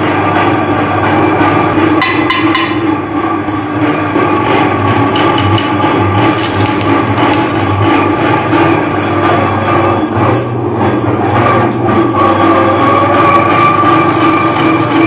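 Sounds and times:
meat grinder motor humming: 0.0 - 15.0
hard candy cracking and clattering: 5.2 - 8.7.

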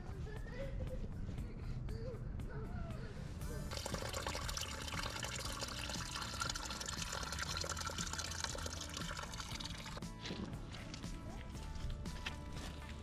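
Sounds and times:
water trickling and gurgling: 3.7 - 10.0.

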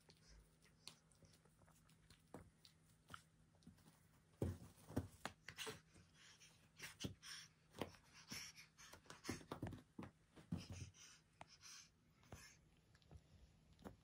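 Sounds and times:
cat thumping and scuffling on carpet: 3.8 - 5.8, 8.9 - 11.0.

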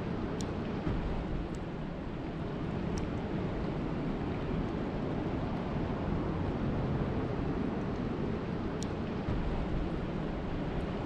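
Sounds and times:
rain falling on water: 0.0 - 11.0.

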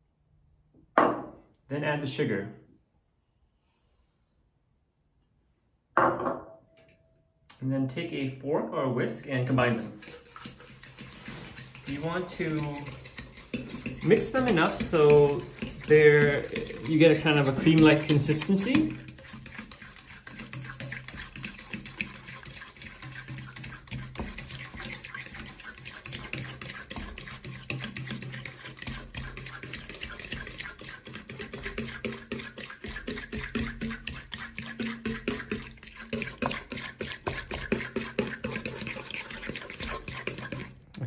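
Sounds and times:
fork scraping metal bowl: 9.4 - 40.8.

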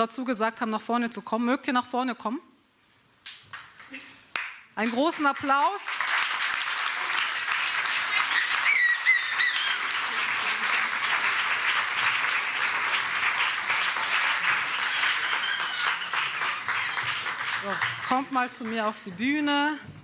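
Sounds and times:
audience applauding: 5.3 - 19.1
high calls from audience: 6.9 - 11.8, 12.5 - 18.1.

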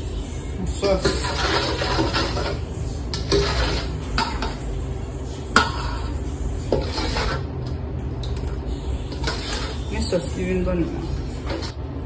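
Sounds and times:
ladle scraping a metal bowl: 0.7 - 4.7, 5.3 - 7.7, 8.7 - 10.4, 11.0 - 11.8.

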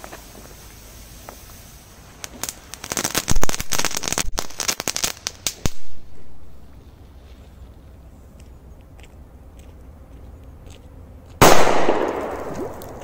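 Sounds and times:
firecracker crackling pops: 0.0 - 6.9, 11.4 - 13.0
muffled firecracker bang: 11.4 - 13.0
ice and water splashing: 12.3 - 13.0.

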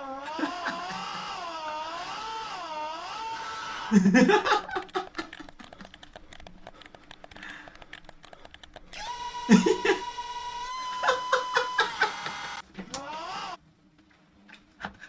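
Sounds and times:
burst of laughter: 0.2 - 1.3, 9.5 - 10.0, 10.9 - 12.6.

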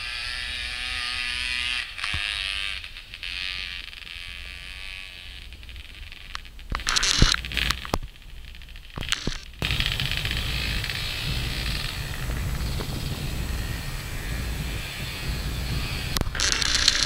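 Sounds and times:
vehicle engine droning: 0.0 - 17.0
wind noise on microphone: 4.8 - 17.0.

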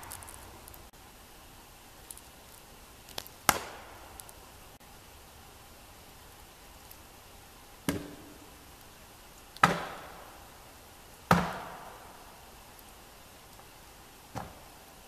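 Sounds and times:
axe chopping into log: 3.5 - 3.9, 9.6 - 10.1, 11.3 - 11.9.

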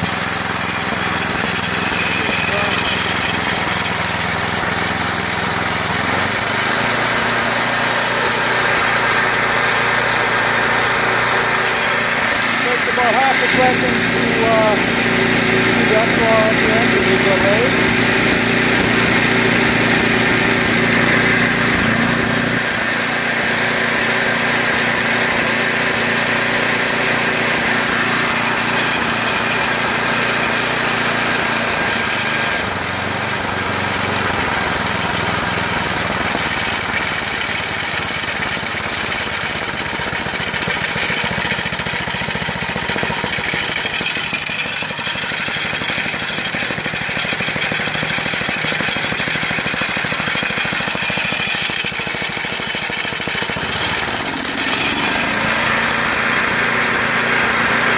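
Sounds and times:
small gas engine running: 0.0 - 57.9.

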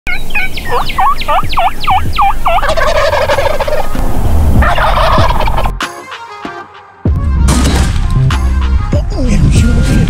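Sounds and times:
turkey rattling gobble: 0.1 - 4.0, 4.6 - 5.7.

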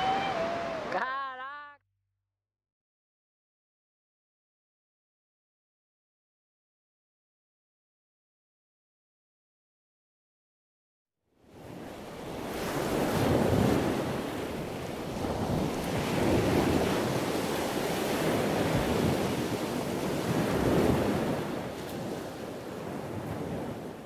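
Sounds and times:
waves breaking: 0.0 - 1.3, 11.5 - 24.0
wind: 0.0 - 1.6, 11.3 - 24.0.

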